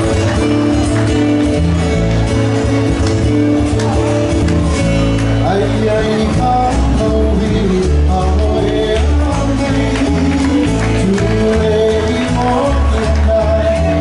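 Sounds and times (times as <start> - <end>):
acoustic guitars strumming: 0.0 - 14.0
bass line: 0.0 - 14.0
man singing: 5.4 - 14.0.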